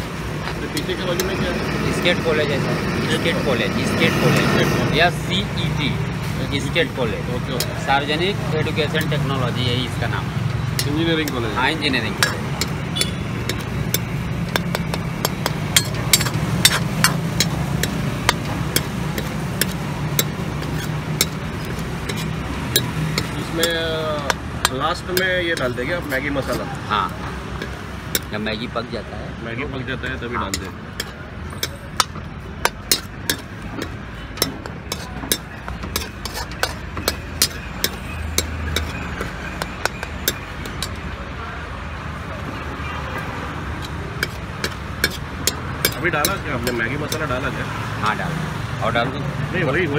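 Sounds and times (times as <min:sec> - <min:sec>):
metal spatula scraping wok: 0:10.5 - 0:28.4, 0:30.5 - 0:41.0, 0:43.7 - 0:47.4
ladle clanking against metal pan: 0:10.7 - 0:26.6, 0:27.6 - 0:28.4, 0:30.5 - 0:41.0, 0:43.8 - 0:47.3.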